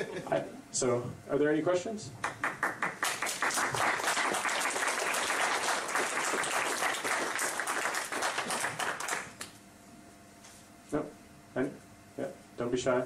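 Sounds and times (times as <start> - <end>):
audience applauding: 2.2 - 9.5.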